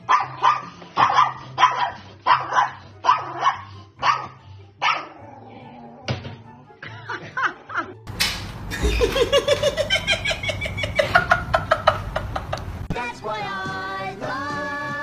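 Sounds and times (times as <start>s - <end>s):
dog yipping: 0.0s - 5.2s
music: 0.0s - 9.9s, 12.9s - 15.0s
person laughing hard: 8.7s - 12.8s.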